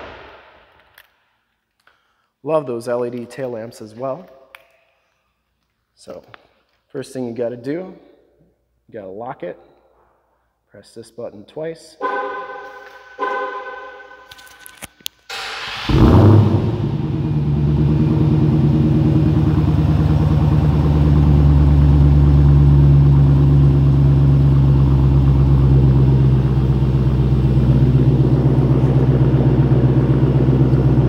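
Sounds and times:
car engine idling: 0:15.3 - 0:31.0.

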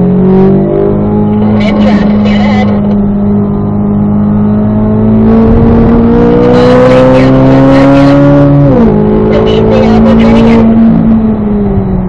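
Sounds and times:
car engine at full throttle: 0:00.0 - 0:12.0.

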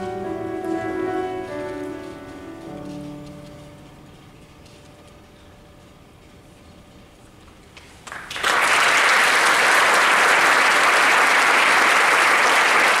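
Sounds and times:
audience applause: 0:08.0 - 0:13.0.

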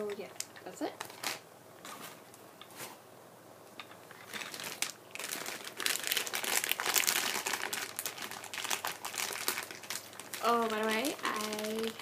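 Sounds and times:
plastic bag crinkling: 0:03.8 - 0:12.0.

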